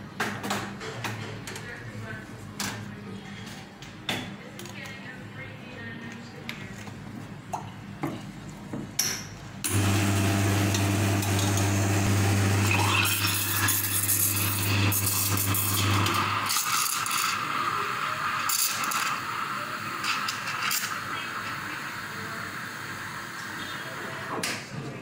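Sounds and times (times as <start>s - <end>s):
low machine hum: 9.7s - 16.4s.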